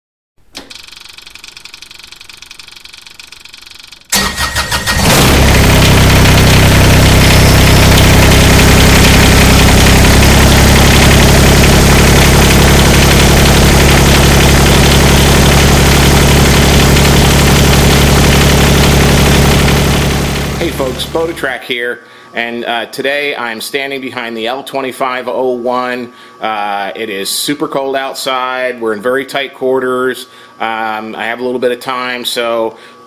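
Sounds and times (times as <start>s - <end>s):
engine cranking: 0.6s - 21.2s
engine running loudly: 4.1s - 21.4s.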